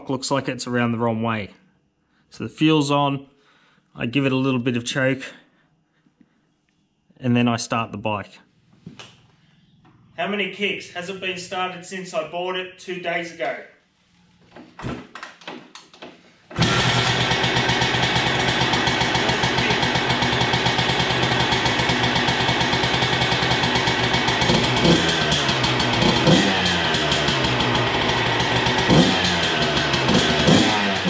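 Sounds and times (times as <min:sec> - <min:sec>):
kickstart knocks: 0:16.5 - 0:20.8
dirt bike engine revving: 0:16.6 - 0:31.0
dirt bike engine running: 0:16.6 - 0:31.0.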